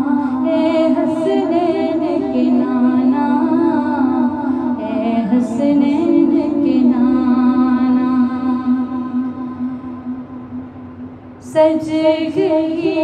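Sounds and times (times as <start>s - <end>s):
solo voice singing: 0.0s - 10.2s
low drone: 0.0s - 13.0s.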